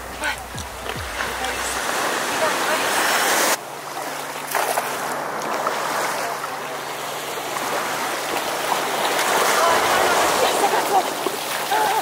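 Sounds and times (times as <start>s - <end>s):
small calm waves washing: 0.2s - 12.0s
cast net splashing into water: 4.4s - 5.9s.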